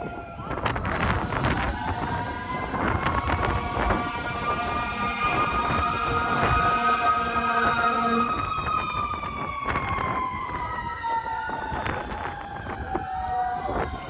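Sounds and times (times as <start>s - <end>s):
emergency vehicle siren wailing: 0.0s - 14.0s.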